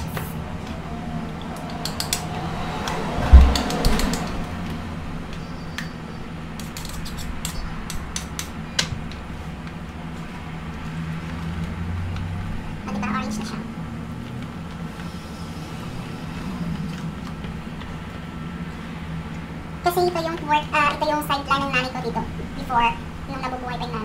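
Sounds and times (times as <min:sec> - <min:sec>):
steady low hum: 0:00.0 - 0:24.0
heavy thump: 0:02.8 - 0:04.6.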